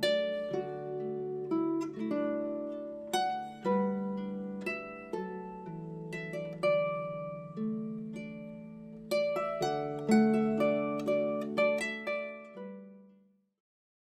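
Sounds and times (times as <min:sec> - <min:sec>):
slow plucked string melody: 0:00.0 - 0:13.2.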